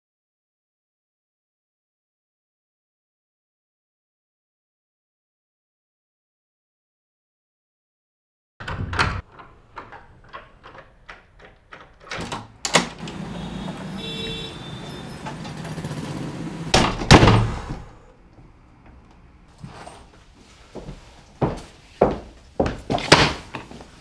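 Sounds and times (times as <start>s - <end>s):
door shutting with heavy thuds: 8.6s - 10.0s, 12.1s - 18.0s
footsteps approaching: 17.8s - 24.0s.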